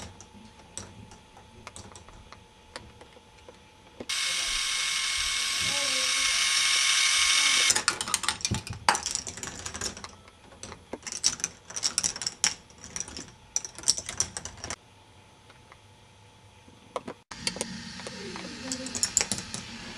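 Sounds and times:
plastic balls rolling and clattering: 7.7 - 14.8, 17.4 - 19.7.

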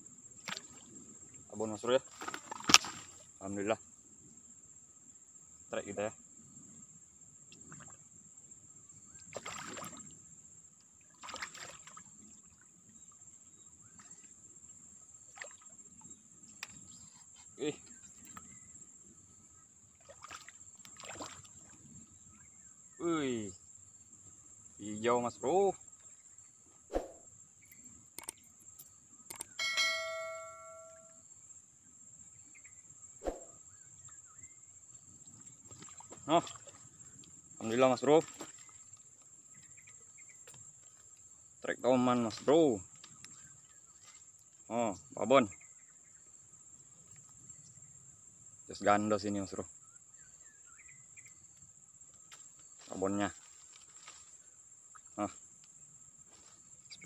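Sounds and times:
high insect drone: 0.0 - 57.0
fish splashing in water: 9.3 - 10.1, 11.1 - 12.1, 20.0 - 21.8
bell ding: 29.6 - 31.2.

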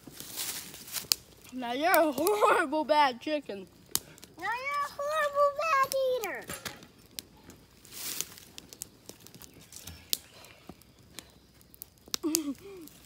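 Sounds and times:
rustling of dry leaves underfoot: 0.0 - 2.6, 6.9 - 13.0.

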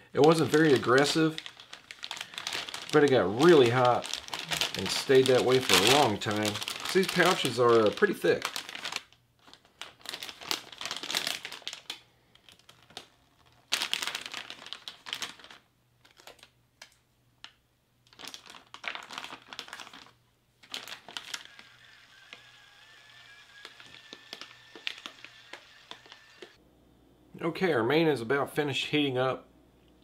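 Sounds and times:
plastic pouches crinkling: 0.0 - 16.6, 17.4 - 26.6.

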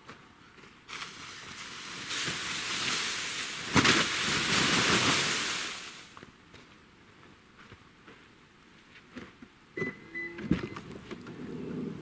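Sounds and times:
snow sliding off tarp: 0.9 - 6.2.

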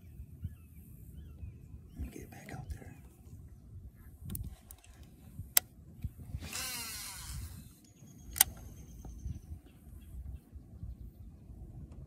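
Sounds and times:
reel spool whirring: 6.4 - 7.7.

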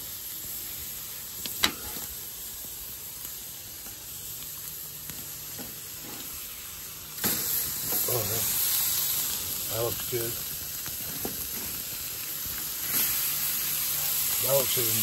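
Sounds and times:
chicken sizzling on grill: 0.0 - 15.0.

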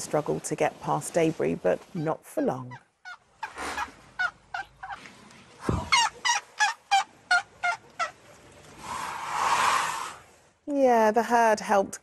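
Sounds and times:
elephants chirping: 8.8 - 10.4.

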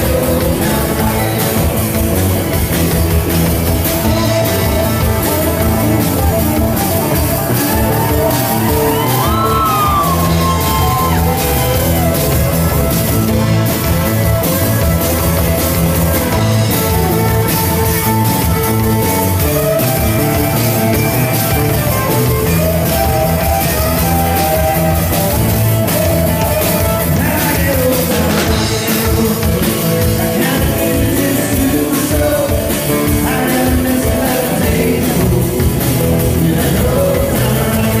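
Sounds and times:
person singing: 0.0 - 3.1, 3.8 - 12.5, 22.4 - 38.0
drums: 0.0 - 38.0
electric guitars: 0.0 - 38.0.

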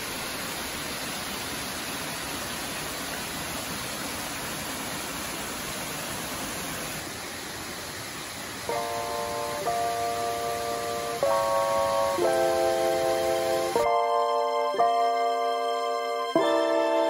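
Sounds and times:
waterfall cascading over rocks: 0.0 - 17.0.

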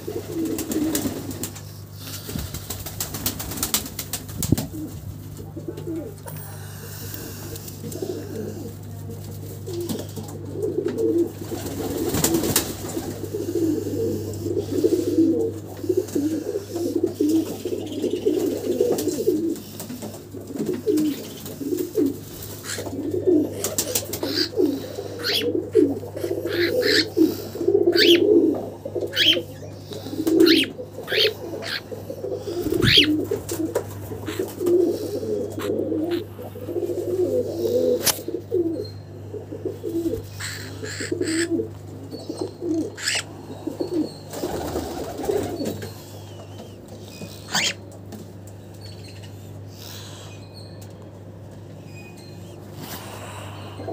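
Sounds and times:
pigeons cooing: 0.0 - 53.9
small bird chirping: 29.1 - 31.8.

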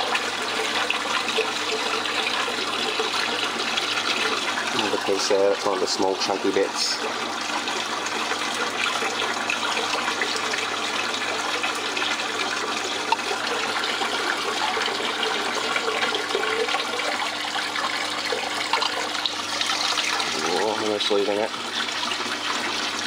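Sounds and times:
water running over a table: 0.0 - 23.0.

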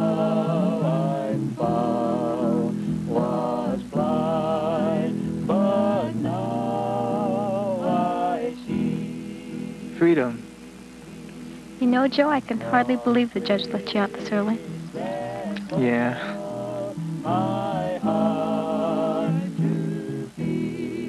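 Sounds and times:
low instrumental accompaniment: 5.6 - 20.1.

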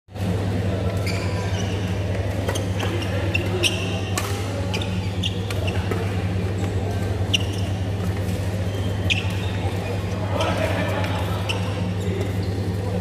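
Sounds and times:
low hall hum: 0.1 - 13.0
shoes squeaking on court: 0.2 - 13.0
racket hitting shuttlecock: 4.0 - 4.5.

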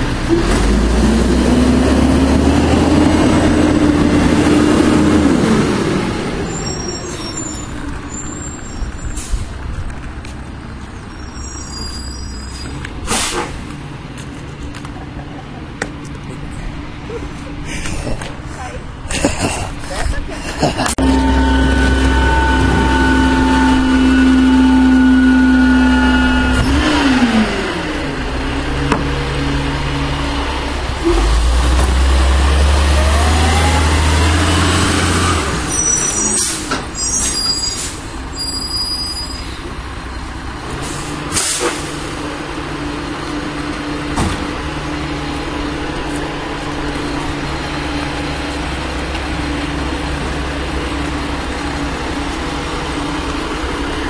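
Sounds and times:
diesel engine revving: 0.0 - 9.7, 20.7 - 38.5, 39.4 - 54.0.

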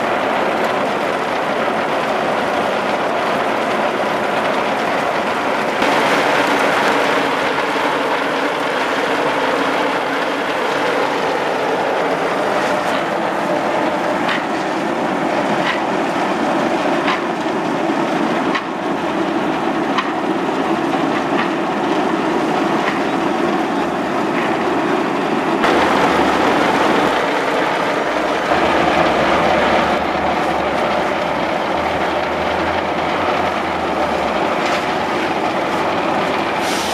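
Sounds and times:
coffee cherries pouring down chute: 5.6 - 13.9, 25.6 - 36.9.

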